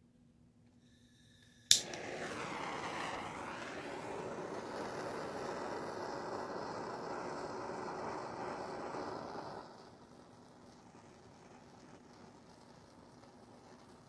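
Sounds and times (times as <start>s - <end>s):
torch flame hissing: 1.0s - 14.0s
torch igniter click: 1.3s - 9.6s.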